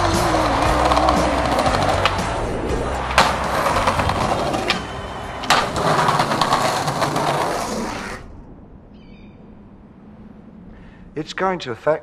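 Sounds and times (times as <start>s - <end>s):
skateboard clacks: 0.0s - 2.4s, 3.0s - 7.8s
skateboard wheels rolling over paving: 0.0s - 8.2s.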